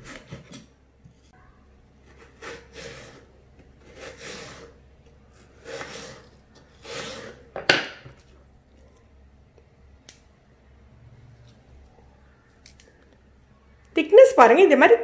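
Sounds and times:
knife slicing potato on board: 2.1 - 4.8, 5.5 - 7.7.

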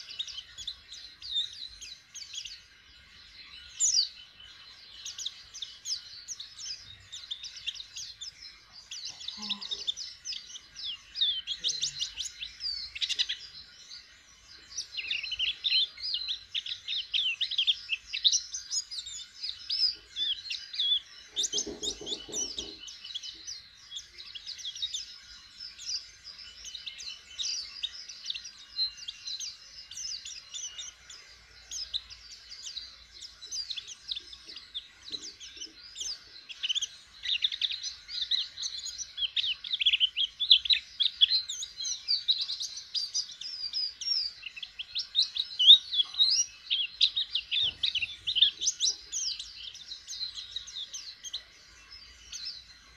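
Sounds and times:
bird twittering song: 0.0 - 52.9.

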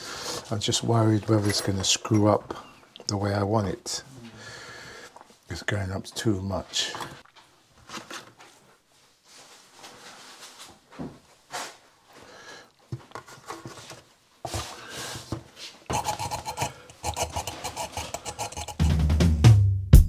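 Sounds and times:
screwdriver driving screws: 15.9 - 18.9
hands scraping on wall socket: 15.9 - 19.0.

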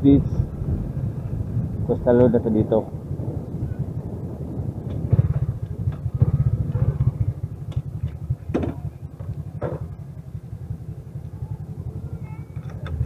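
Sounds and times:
motor scooter engine putter: 12.4 - 13.0.

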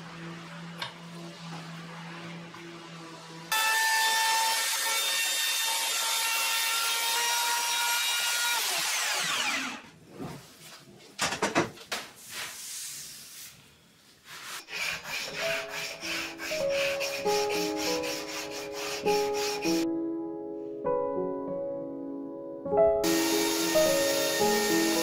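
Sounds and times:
router whining: 0.0 - 9.8, 23.0 - 25.0.

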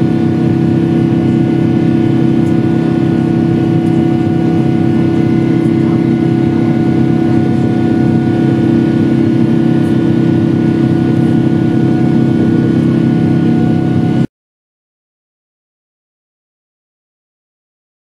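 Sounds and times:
held humming tones: 0.0 - 14.3
jet engines droning: 0.0 - 14.3.

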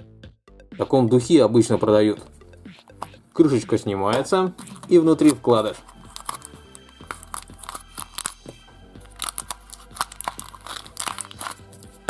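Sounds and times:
background music: 0.0 - 12.0
paper leaflet crinkling: 4.6 - 12.0
plastic packaging rustling: 4.6 - 12.0.

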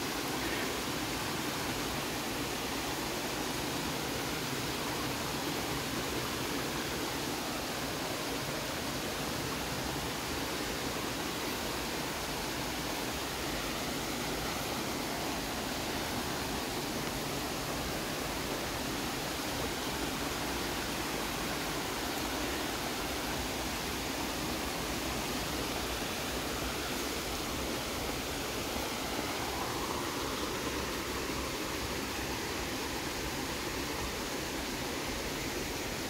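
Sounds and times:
waterfall rushing over boulders: 0.0 - 36.0.

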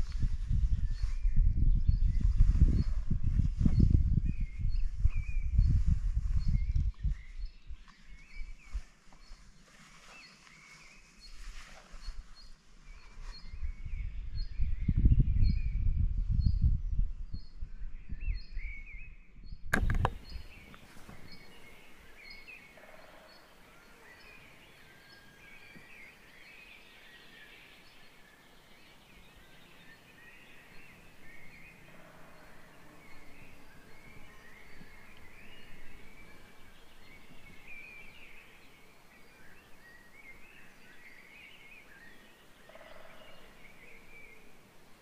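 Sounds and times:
wind rumbling on microphone: 0.0 - 9.6, 10.8 - 23.3, 23.9 - 45.0
birds singing: 0.0 - 45.0
sharp click: 19.7 - 20.2.

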